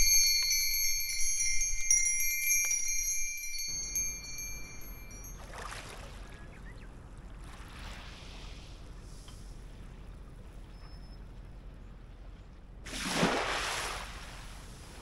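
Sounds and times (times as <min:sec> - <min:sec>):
metal chime tubes ringing: 0:00.0 - 0:05.6
wind bells ringing: 0:00.0 - 0:06.3
small waves washing on sand: 0:05.4 - 0:06.4, 0:07.3 - 0:09.9, 0:12.8 - 0:15.0.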